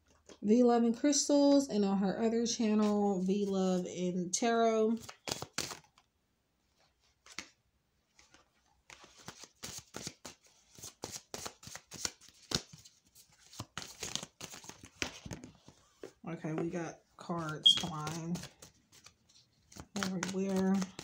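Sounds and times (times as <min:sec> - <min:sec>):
cards shuffling: 0:05.0 - 0:06.0, 0:07.2 - 0:21.0.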